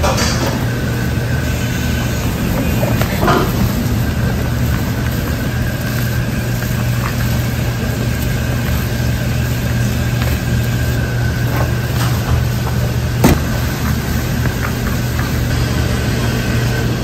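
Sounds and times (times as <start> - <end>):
kitchen machinery hum: 0.0 - 17.0
salad rustling in plastic bowl: 2.1 - 15.5.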